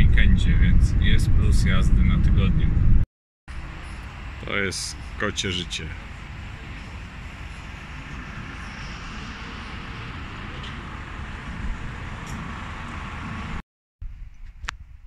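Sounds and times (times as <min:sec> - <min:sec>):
traffic rumble with hiss: 0:03.5 - 0:13.6.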